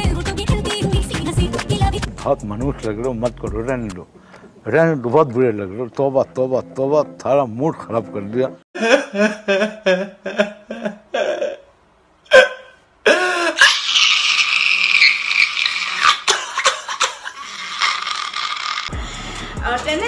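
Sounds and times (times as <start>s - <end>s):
man sobbing: 8.8s - 11.7s, 12.3s - 14.6s.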